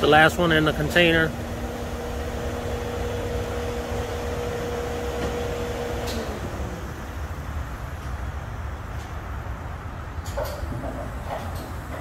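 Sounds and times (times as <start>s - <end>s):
truck diesel engine idling: 0.0s - 7.8s
steady hum: 0.0s - 10.2s.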